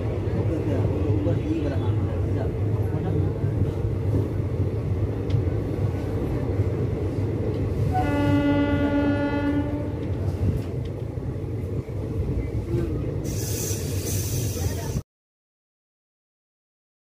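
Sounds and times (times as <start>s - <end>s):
train rumbling: 0.0s - 15.0s
train horn: 7.9s - 10.2s.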